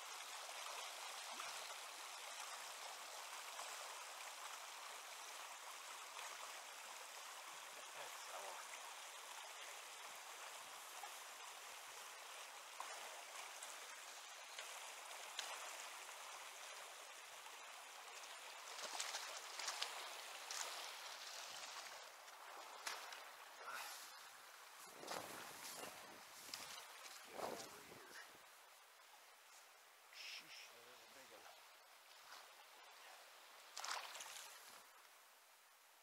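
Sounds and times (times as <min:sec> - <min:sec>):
river flowing over rocks: 0:00.0 - 0:25.4.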